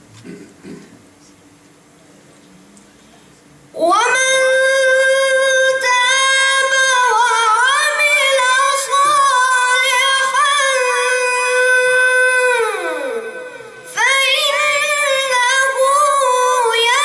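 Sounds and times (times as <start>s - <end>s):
boy reciting melodically: 3.8s - 17.0s.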